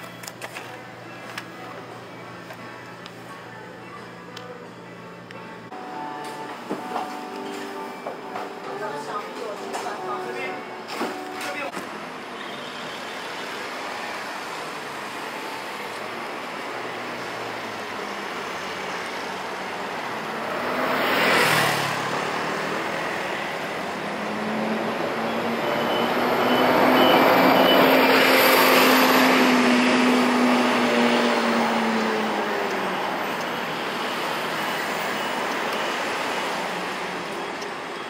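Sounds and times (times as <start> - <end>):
street traffic hiss: 10.0 - 38.0.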